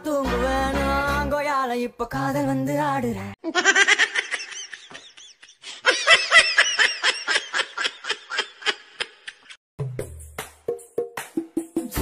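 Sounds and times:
high-pitched laughter: 0:03.4 - 0:09.6.

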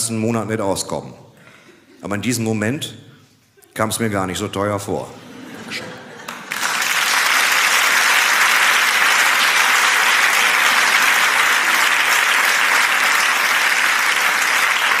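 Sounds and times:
audience applauding: 0:06.1 - 0:15.0.

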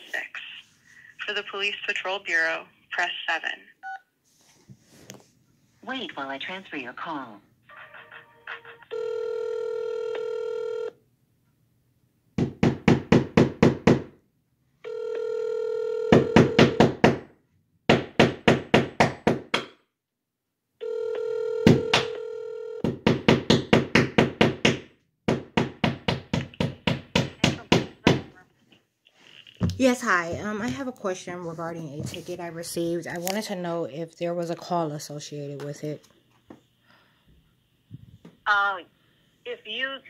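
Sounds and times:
telephone ringing: 0:07.7 - 0:11.0, 0:14.8 - 0:16.8, 0:20.8 - 0:22.8.

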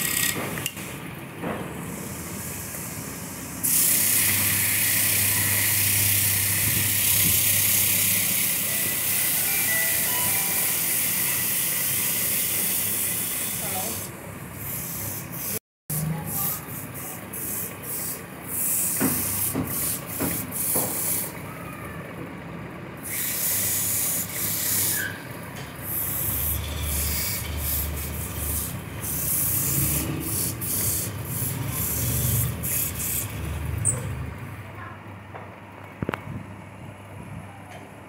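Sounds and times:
lathe tool hissing on wood: 0:02.0 - 0:15.6, 0:23.0 - 0:25.2, 0:25.8 - 0:33.5.

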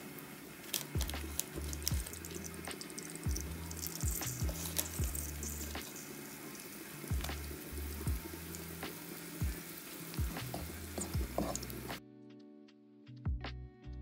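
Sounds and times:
flour sizzling in hot fat: 0:00.0 - 0:12.0
spoon clicking and scraping: 0:00.8 - 0:06.2.

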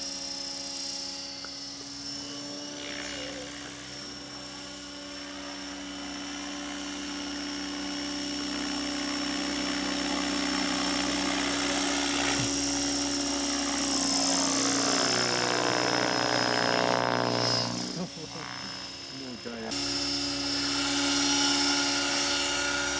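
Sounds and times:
model helicopter rotor whine: 0:00.0 - 0:22.9.

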